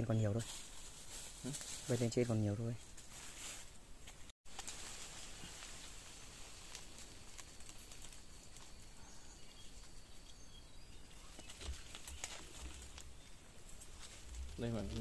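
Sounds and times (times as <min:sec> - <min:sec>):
faint bird chirps: 0:07.6 - 0:15.0.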